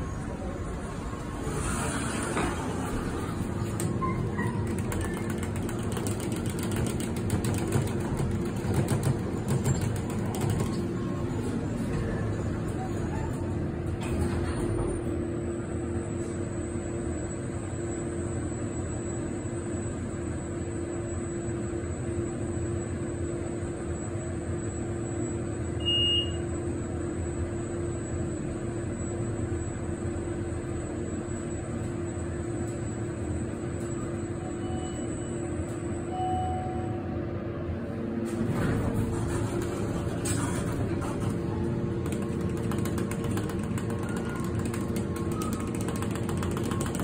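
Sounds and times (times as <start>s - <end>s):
elevator fan and travel hum: 0.0s - 47.0s
short high beep: 25.8s - 26.4s, 36.1s - 37.0s.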